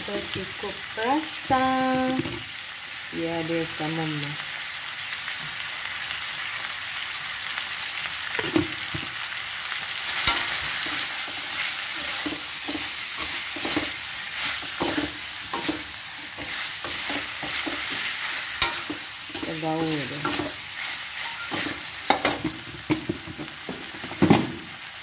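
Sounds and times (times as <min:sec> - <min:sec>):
meat sizzling in a wok: 0:00.0 - 0:25.0
metal spatula scraping a wok: 0:10.1 - 0:24.0.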